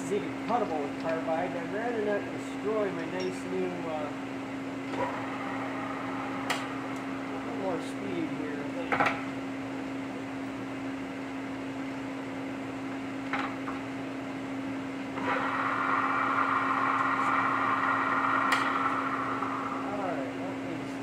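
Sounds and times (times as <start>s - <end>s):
drill humming: 15.2s - 20.3s
high whirring drill: 15.2s - 20.4s.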